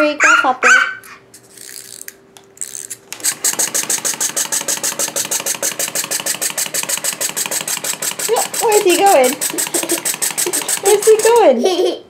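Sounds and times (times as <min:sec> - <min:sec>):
wind-up toy clockwork clattering: 0:03.2 - 0:11.6.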